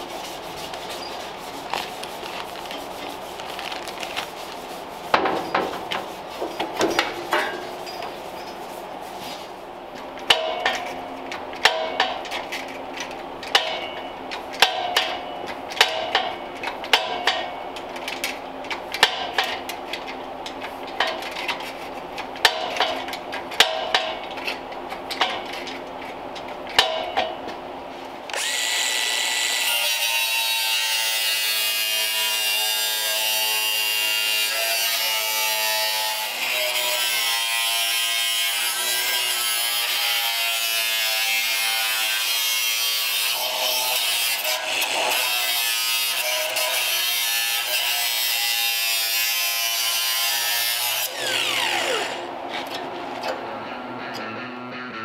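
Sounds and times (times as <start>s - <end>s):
angle grinder on sheet steel: 28.3s - 52.3s.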